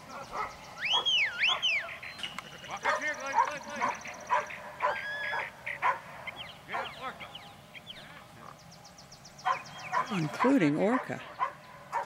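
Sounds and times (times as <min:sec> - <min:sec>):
faint chirping calls: 0:00.0 - 0:12.0
animal calls with bending pitch: 0:00.8 - 0:08.6.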